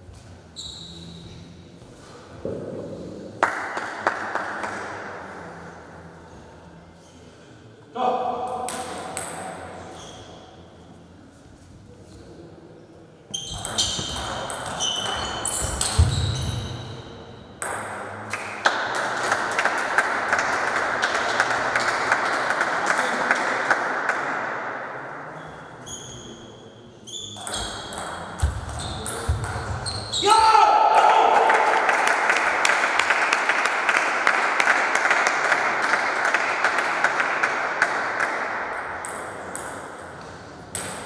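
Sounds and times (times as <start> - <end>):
table tennis ball hits: 13.5 - 16.5, 27.4 - 29.8, 40.7 - 41.0.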